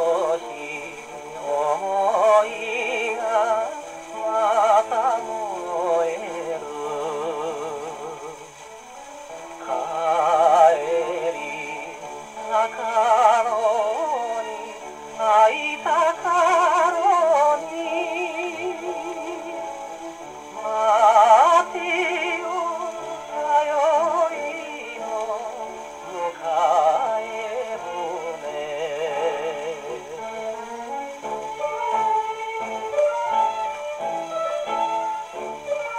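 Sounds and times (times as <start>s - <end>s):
instrumental accompaniment: 0.0s - 35.9s
man singing with vibrato: 0.0s - 35.9s.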